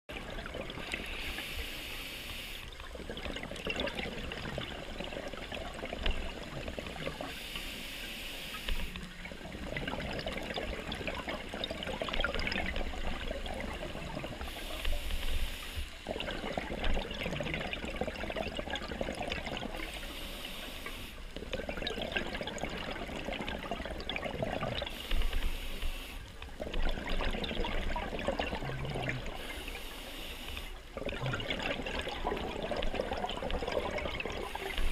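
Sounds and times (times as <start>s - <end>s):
exhaled bubbles gurgling: 0.1s - 34.9s
regulator inhalation hiss: 0.9s - 2.7s, 7.3s - 9.0s, 14.4s - 16.0s, 19.8s - 21.2s, 24.9s - 26.3s, 29.4s - 30.8s.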